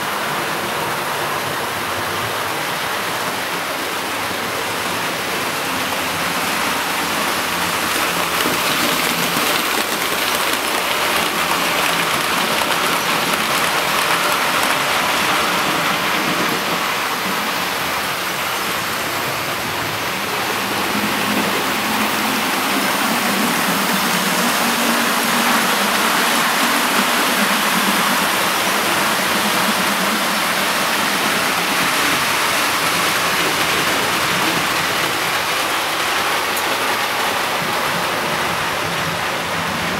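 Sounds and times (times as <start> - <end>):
model trains running on track: 0.0 - 39.9.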